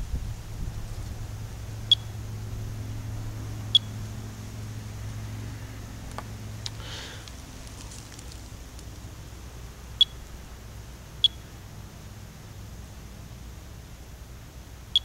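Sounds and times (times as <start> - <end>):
steady low hum: 0.0 - 15.0
geiger counter chirps: 1.9 - 2.2, 3.7 - 4.0, 9.9 - 10.3, 11.2 - 11.5.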